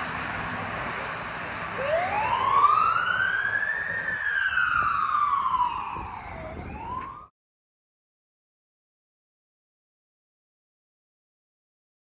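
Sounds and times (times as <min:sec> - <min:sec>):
emergency siren wailing: 0:00.0 - 0:07.3.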